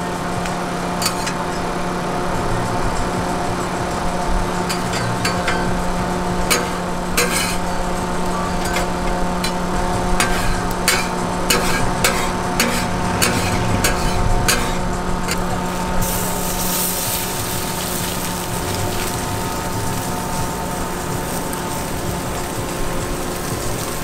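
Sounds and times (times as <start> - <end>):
machine hum: 0.0 - 23.8
food sizzling: 0.0 - 24.0
cooking utensils clicking: 1.0 - 1.6, 4.6 - 14.8.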